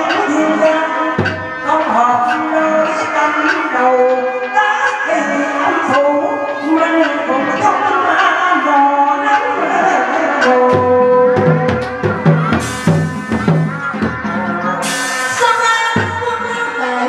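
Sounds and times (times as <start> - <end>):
drumming: 0.0 - 17.0
held melodic instrument line: 10.4 - 17.0
bright cymbal crashes: 11.4 - 16.2.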